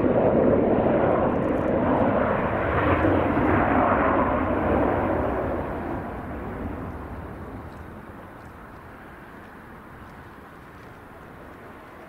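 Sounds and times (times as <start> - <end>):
jet engine rumble: 0.0 - 12.0.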